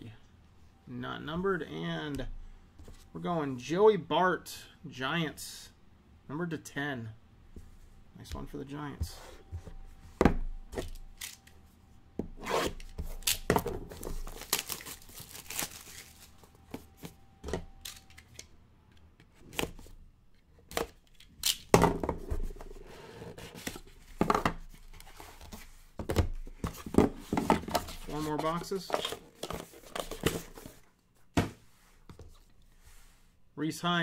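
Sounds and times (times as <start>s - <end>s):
plastic wrap tearing and crinkling: 14.2s - 16.4s.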